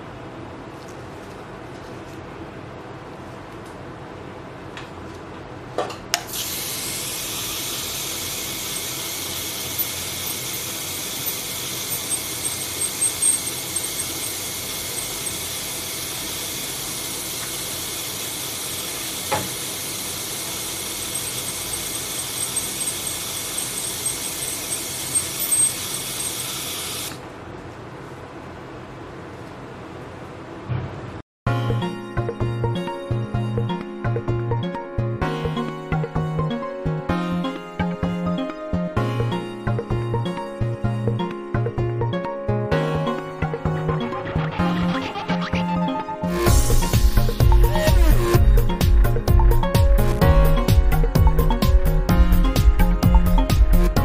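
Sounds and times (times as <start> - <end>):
dental scaler whining: 6.4 - 27.2.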